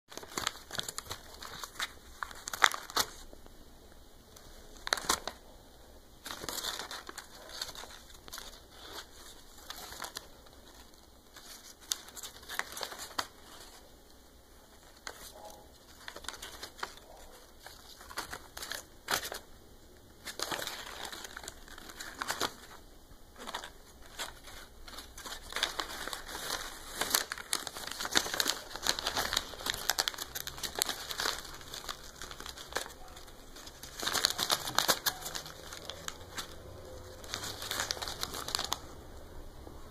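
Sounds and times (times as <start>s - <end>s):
paper ripping: 0.1s - 3.3s, 23.4s - 39.0s
paper crumpling and crinkling: 0.1s - 3.4s, 4.3s - 5.6s, 6.2s - 39.2s.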